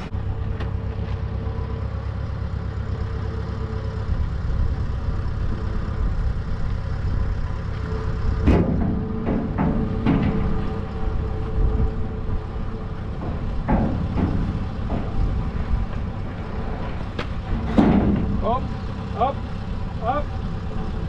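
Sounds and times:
diesel engine idling: 0.0s - 21.0s
steel beam knocking on steel frame: 8.4s - 18.7s.

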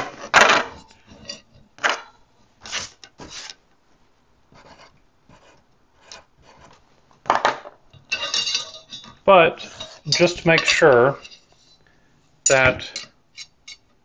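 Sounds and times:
objects scraping and knocking on table: 0.0s - 2.0s, 2.6s - 3.6s
pencil scratching on paper: 4.5s - 6.8s.

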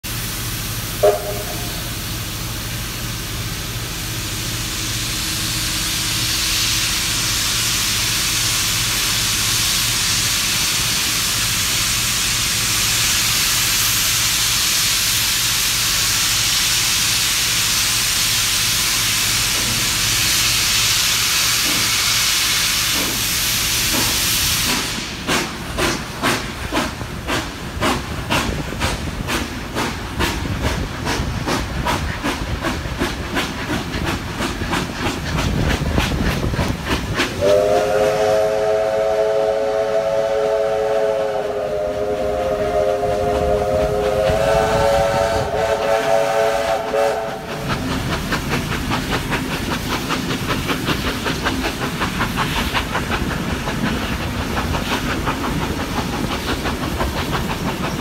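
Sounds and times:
steam locomotive chuffing: 0.0s - 58.0s
steam whistle blast: 1.0s - 2.0s, 37.4s - 47.5s
steam hissing from drain cocks: 4.0s - 58.0s.

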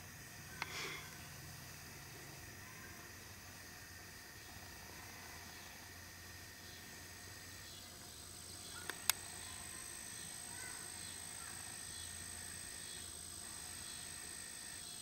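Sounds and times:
high-pitched insect drone: 0.0s - 15.0s
sharp clicks: 8.8s - 9.3s.

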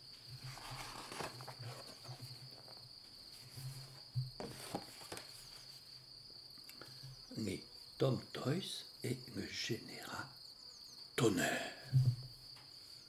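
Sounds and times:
cricket trilling: 0.0s - 13.0s
book pages rustling: 0.4s - 5.9s.

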